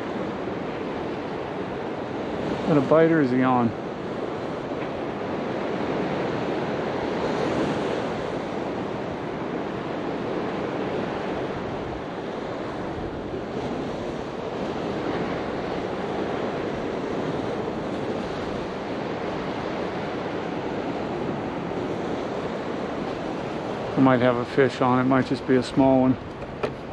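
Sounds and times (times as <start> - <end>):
ocean surf washing onto beach: 0.0 - 26.9.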